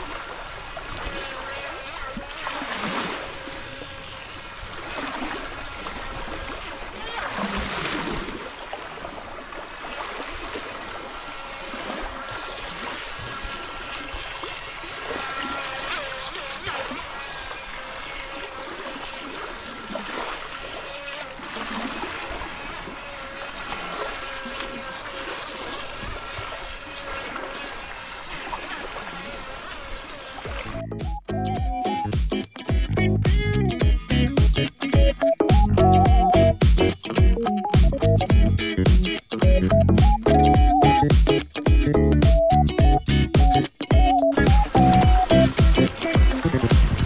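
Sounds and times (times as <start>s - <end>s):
toy boat electric motor whine: 0.0s - 7.7s, 9.6s - 30.9s
lake waves lapping at shoreline: 0.0s - 32.7s, 38.6s - 47.0s.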